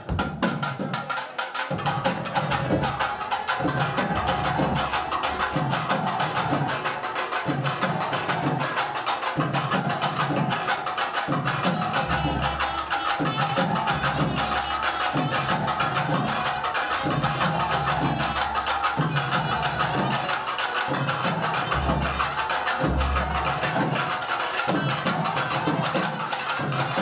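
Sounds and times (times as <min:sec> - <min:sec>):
drums in a fast rhythm: 0:00.0 - 0:27.0.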